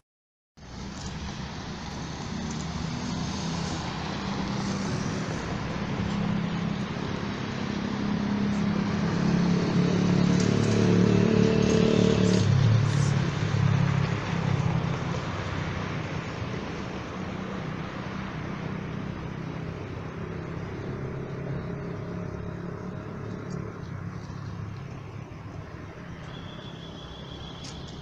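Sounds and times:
street traffic noise: 0.6s - 28.0s.

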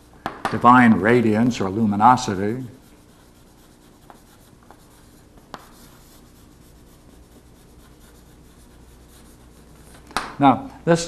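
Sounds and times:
chalk scratching on blackboard: 0.0s - 10.0s
chalk tap: 2.9s - 6.5s.

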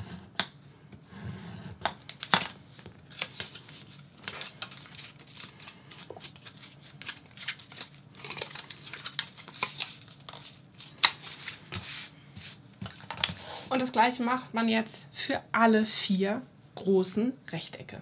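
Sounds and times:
paper rustling and crinkling: 2.0s - 12.1s.

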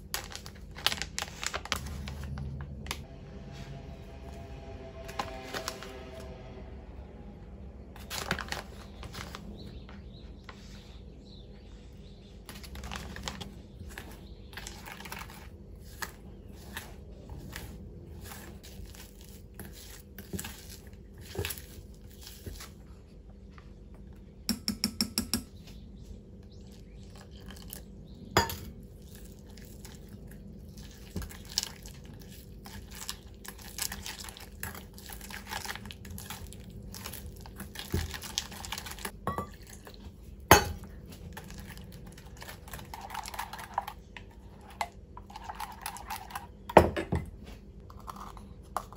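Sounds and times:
utensil tapping a bowl: 24.5s - 25.5s.

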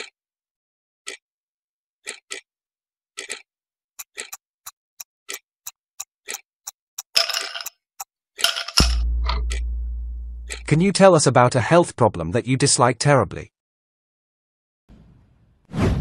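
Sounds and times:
clock ticking: 4.0s - 7.2s, 8.8s - 10.9s.

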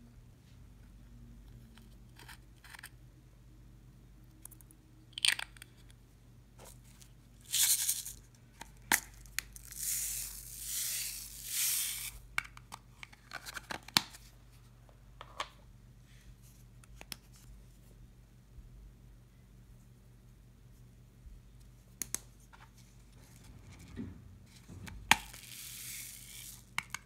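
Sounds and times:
plastic beads trickling: 7.4s - 8.3s, 9.1s - 12.2s, 25.1s - 27.0s.

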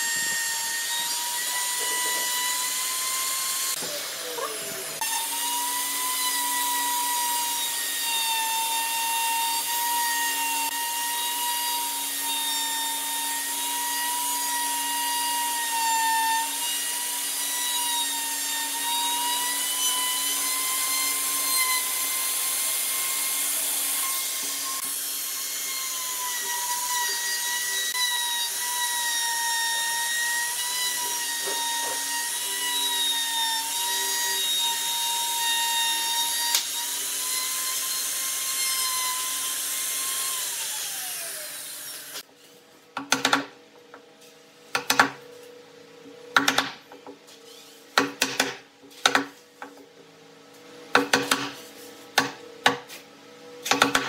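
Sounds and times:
router whining cutting wood: 0.0s - 42.3s.

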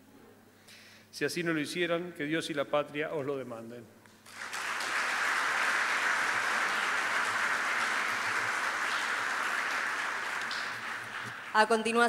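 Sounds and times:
audience applauding: 4.2s - 12.0s.

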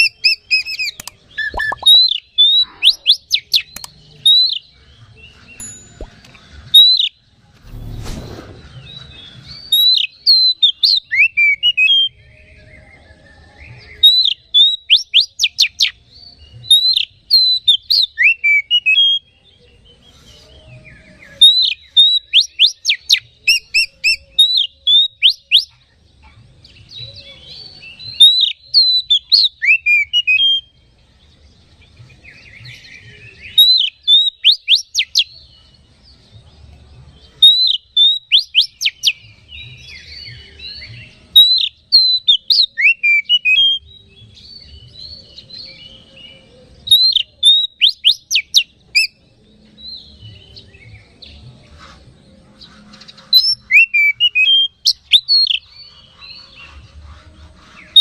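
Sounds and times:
scratchy bird twittering: 0.0s - 4.6s, 51.6s - 58.0s
bird whistling song: 0.0s - 25.9s, 26.9s - 30.8s, 32.1s - 35.8s, 37.3s - 58.0s.

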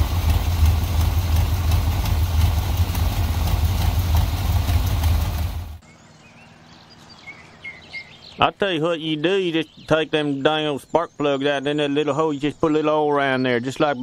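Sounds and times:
pickup engine idling: 0.0s - 5.8s
faint birdsong: 4.8s - 14.0s.

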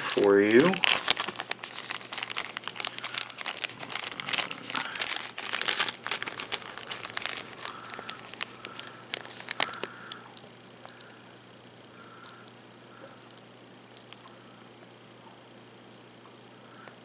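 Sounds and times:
plastic film crinkling: 0.0s - 11.1s.

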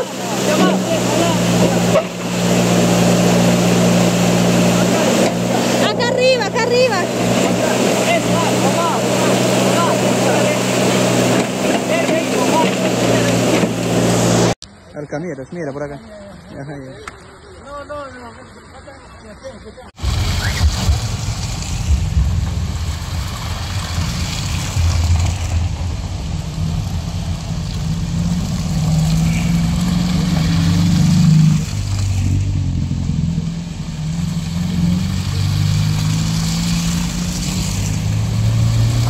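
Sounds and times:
car engines driving past: 20.0s - 39.0s.

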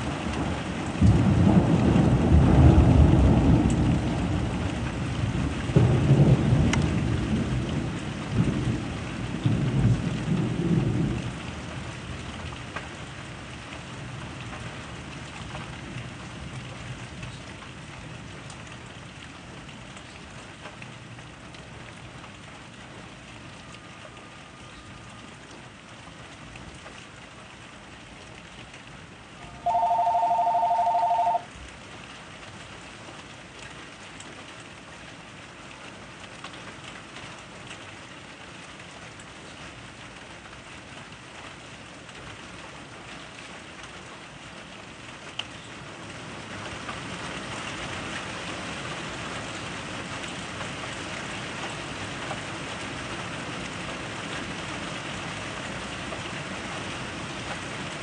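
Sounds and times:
steady rain falling: 0.0s - 58.0s
two-tone electronic beep: 29.4s - 31.4s.

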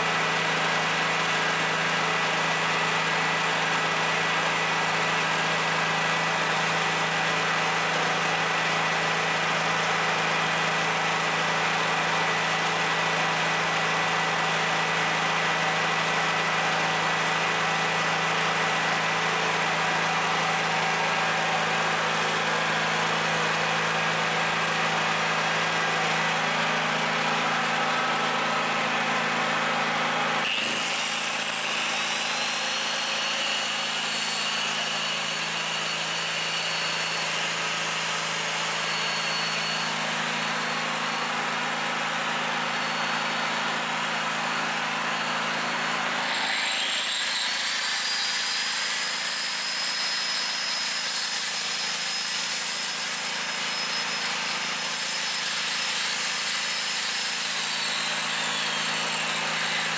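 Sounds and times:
generator engine running: 0.0s - 46.9s
angle grinder whine: 0.0s - 59.9s.

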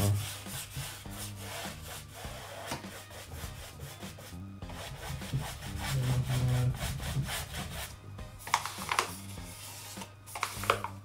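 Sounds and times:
paintbrush scrubbing on wood: 0.0s - 8.0s, 9.0s - 10.5s.

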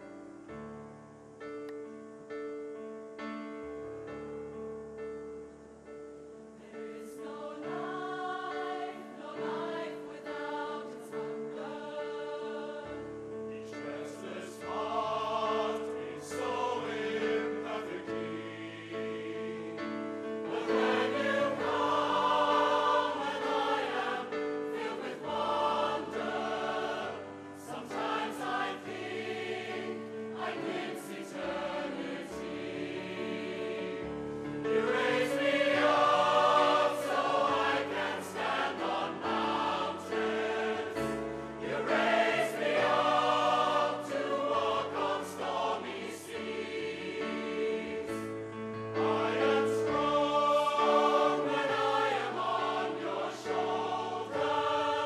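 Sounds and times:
choir singing slow piece: 0.0s - 55.0s.

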